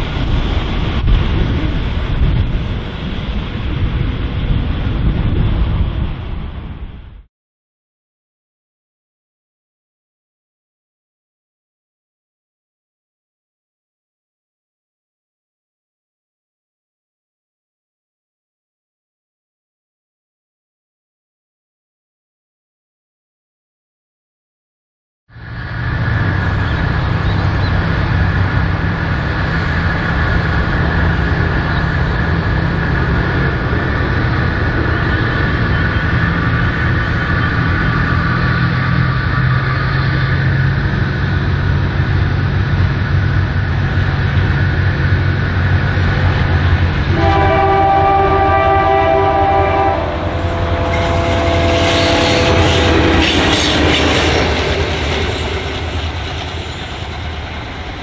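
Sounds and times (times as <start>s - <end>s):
locomotive engine drone: 0.0s - 7.3s, 25.3s - 58.0s
wheel and rail noise: 0.0s - 7.3s, 25.3s - 58.0s
locomotive air horn: 47.1s - 54.5s.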